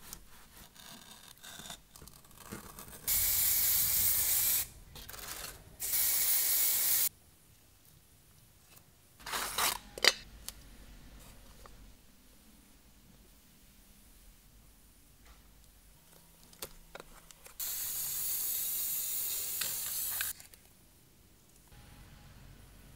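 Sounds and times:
spray-paint can hissing: 3.1 - 4.7, 5.8 - 7.1, 17.6 - 20.3.

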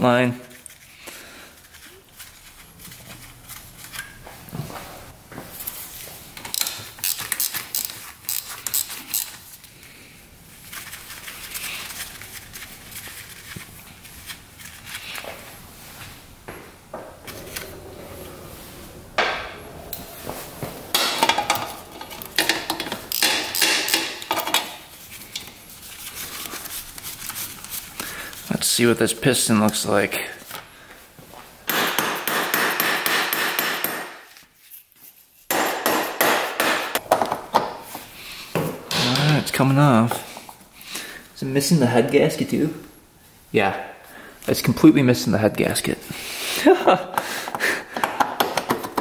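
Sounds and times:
wrenches and metal parts clanking: 6.4 - 9.4, 17.1 - 25.5.

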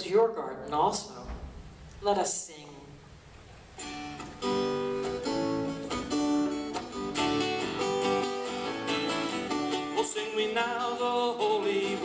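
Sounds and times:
acoustic guitars strumming chords: 3.0 - 12.0.

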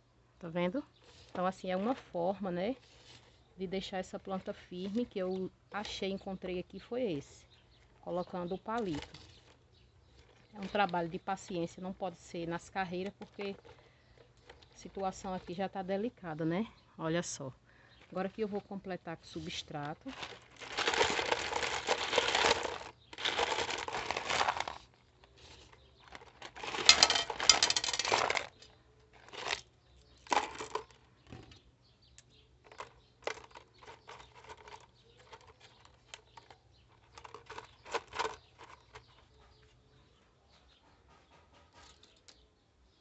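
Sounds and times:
stones rattling into plastic pot: 8.2 - 15.7, 19.4 - 31.6, 32.6 - 39.2.

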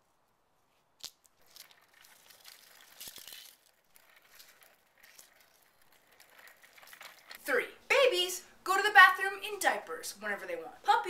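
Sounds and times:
stroller wheels rattling on concrete: 1.4 - 7.5.

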